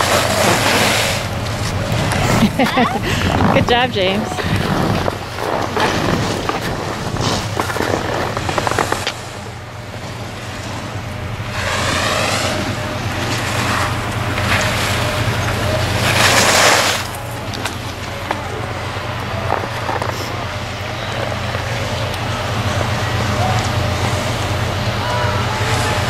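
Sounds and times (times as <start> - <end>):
skis scraping on snow: 0.0 - 2.5, 3.1 - 9.5, 10.4 - 21.6
wind noise on microphone: 1.3 - 15.2.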